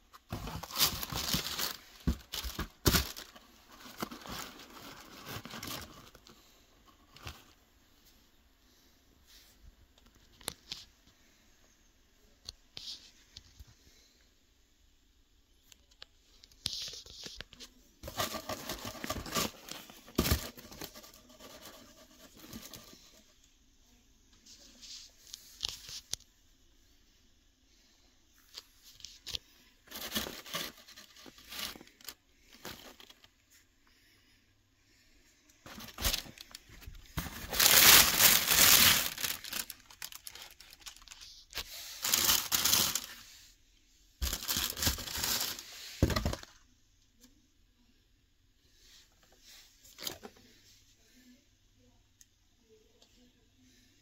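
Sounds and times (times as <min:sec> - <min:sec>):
tissue paper rustling: 0:00.3 - 0:06.2, 0:18.0 - 0:23.2, 0:35.6 - 0:43.5, 0:44.2 - 0:46.3.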